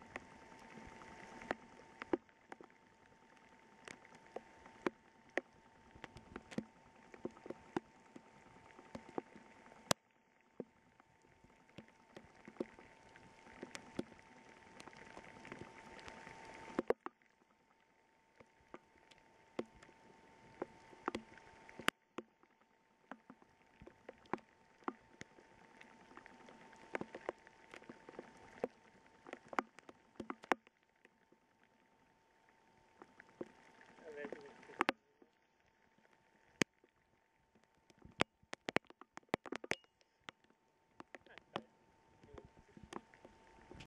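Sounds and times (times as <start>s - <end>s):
raindrops tapping near microphone: 37.5s - 43.9s.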